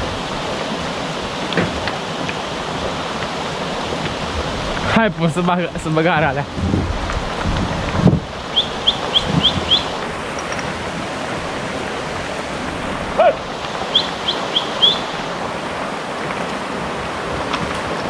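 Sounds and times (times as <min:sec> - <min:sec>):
river rushing over stones: 0:00.0 - 0:18.0
bird chirping: 0:08.5 - 0:10.0, 0:13.8 - 0:15.2
short low call: 0:13.1 - 0:15.1.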